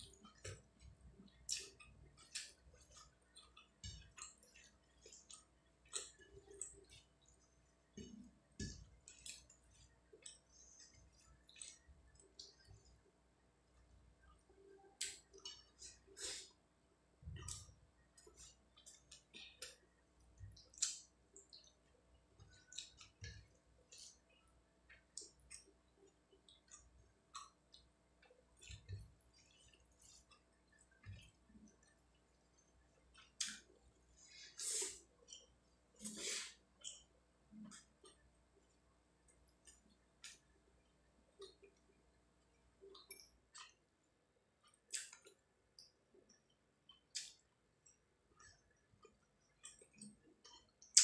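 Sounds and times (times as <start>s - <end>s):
fingers squishing food: 0.0s - 13.2s, 17.2s - 34.1s, 44.6s - 51.0s.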